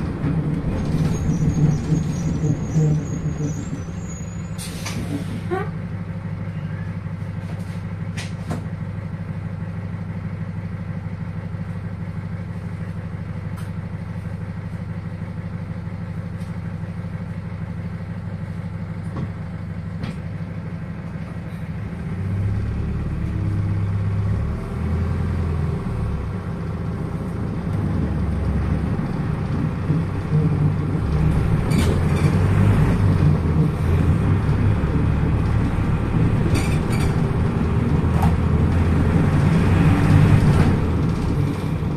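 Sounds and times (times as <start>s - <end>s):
bus body knocks and rattles: 0.0s - 4.1s, 7.5s - 8.8s, 19.0s - 20.5s, 28.9s - 41.9s
bus diesel engine: 0.0s - 41.9s.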